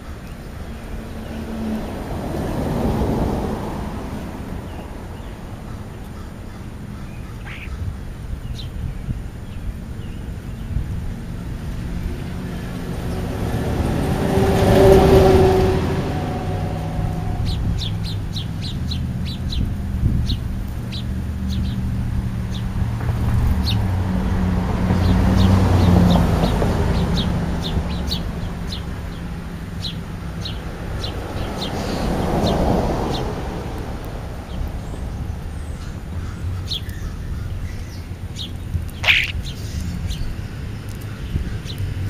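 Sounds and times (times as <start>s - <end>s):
passing road traffic rumble: 0.0s - 42.0s
starlings chirping: 4.6s - 10.8s, 17.3s - 22.8s, 24.9s - 33.4s, 34.4s - 42.0s.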